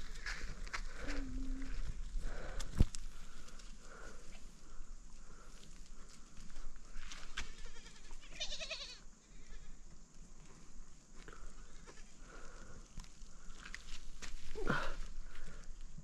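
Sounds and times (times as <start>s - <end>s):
goat bleating: 7.4s - 9.8s.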